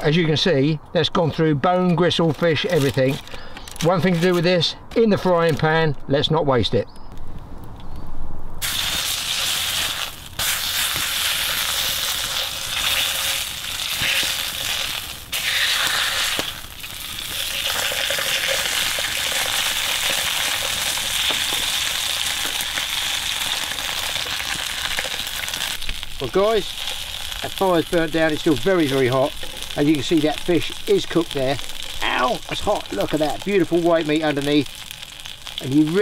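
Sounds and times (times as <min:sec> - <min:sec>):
fish sizzling in a frying pan: 0:08.6 - 0:36.0.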